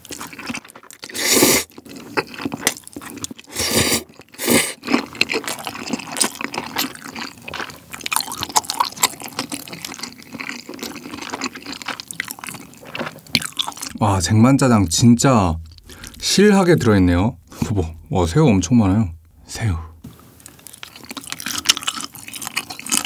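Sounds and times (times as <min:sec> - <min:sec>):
chewing with mouth clicks: 0:00.0 - 0:14.0, 0:15.6 - 0:16.2, 0:20.4 - 0:23.0
person slurping noodles: 0:01.0 - 0:02.2, 0:03.4 - 0:05.0.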